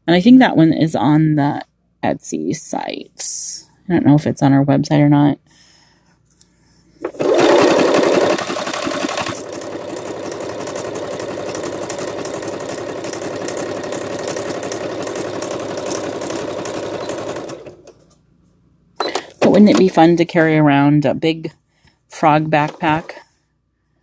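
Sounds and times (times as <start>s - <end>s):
sewing machine stitching: 7.0s - 18.1s, 19.0s - 20.5s, 22.2s - 23.2s.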